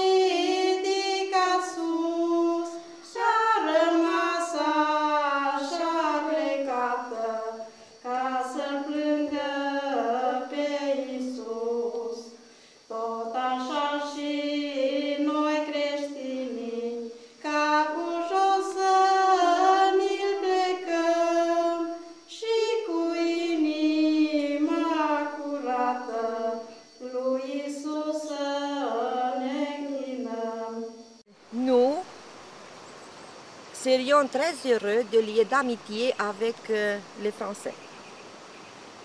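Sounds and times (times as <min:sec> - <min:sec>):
children singing unaccompanied: 0:00.0 - 0:30.9.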